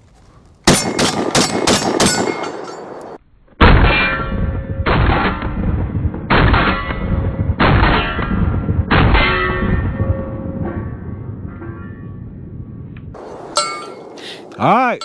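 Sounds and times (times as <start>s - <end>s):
shotgun shots ringing: 0.6s - 10.1s
slowed deep booms: 3.6s - 13.2s.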